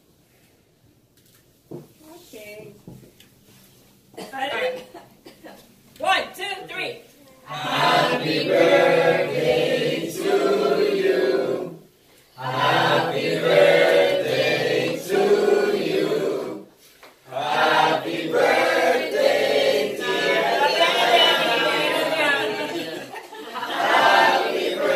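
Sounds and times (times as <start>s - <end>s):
group of people singing together: 7.5s - 24.9s.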